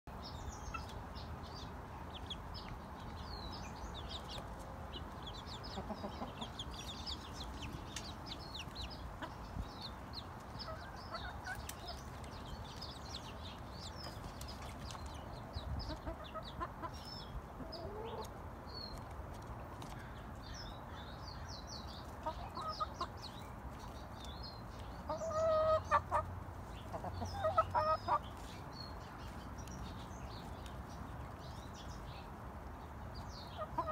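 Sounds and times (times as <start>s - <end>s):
chicks peeping: 0.1s - 33.9s
chicken clucking: 3.4s - 20.0s, 22.0s - 29.8s, 33.4s - 33.9s.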